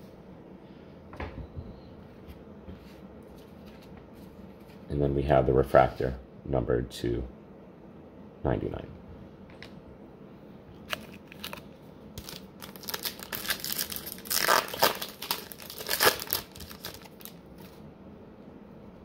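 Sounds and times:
wrapper tearing and crinkling: 0:10.9 - 0:17.8.

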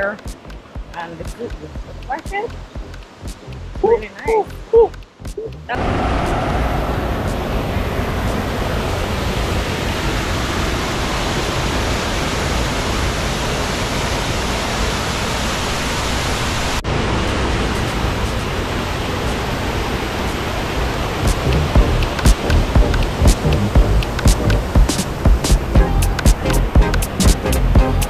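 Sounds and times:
waterfall splashing into pool: 0:05.7 - 0:26.4.

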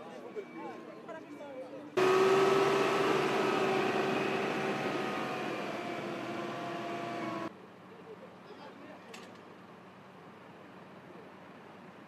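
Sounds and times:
turbine aircraft engine running down: 0:02.0 - 0:07.5.

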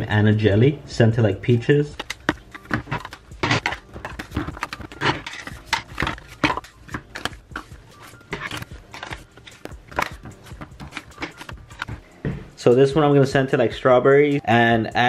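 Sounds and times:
plastic lids clicking: 0:01.9 - 0:12.1
tubs set down on stone: 0:01.9 - 0:12.5.

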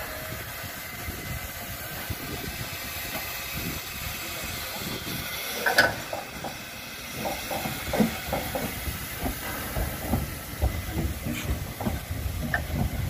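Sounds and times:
steam hissing from locomotive: 0:00.0 - 0:13.0
wheels knocking on rails: 0:05.6 - 0:13.0.

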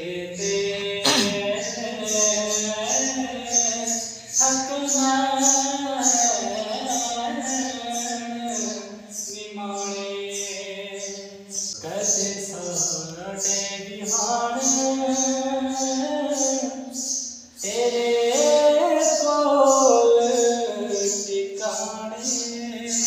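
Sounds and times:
man singing unaccompanied: 0:00.0 - 0:23.0.

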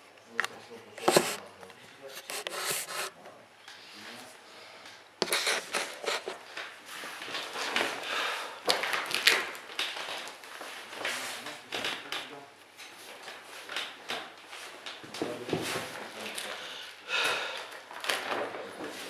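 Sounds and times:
handling noise rustling and scraping: 0:01.0 - 0:01.5, 0:02.1 - 0:03.2.

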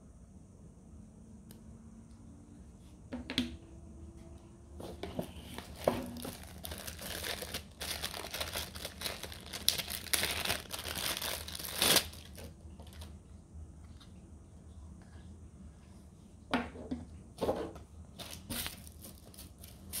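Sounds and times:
plastic bag crinkling: 0:05.5 - 0:13.1.

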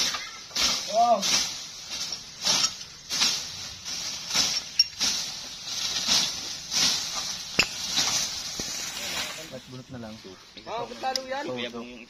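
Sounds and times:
machete swishing through dry grass: 0:00.0 - 0:09.6
sharp metal clink: 0:07.6 - 0:08.0.

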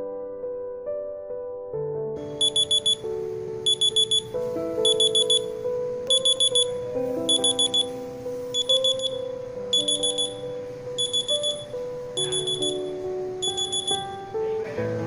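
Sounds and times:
phone alarm beeping: 0:02.4 - 0:03.1, 0:03.7 - 0:14.3.

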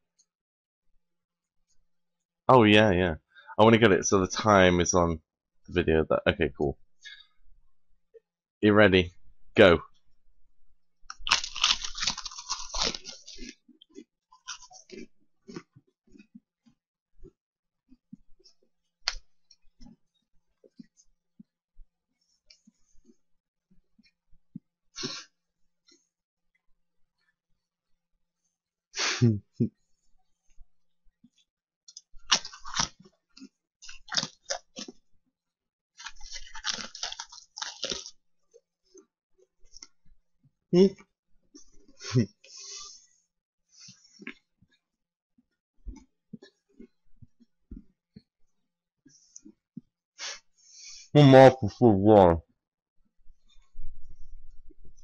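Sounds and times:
crackers being crunched and chewed: 0:11.0 - 0:16.8, 0:31.9 - 0:35.1, 0:36.0 - 0:40.0.

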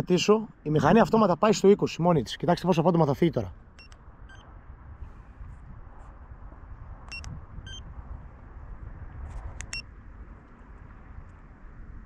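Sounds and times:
short electronic beeps: 0:03.8 - 0:04.5, 0:07.1 - 0:07.8.

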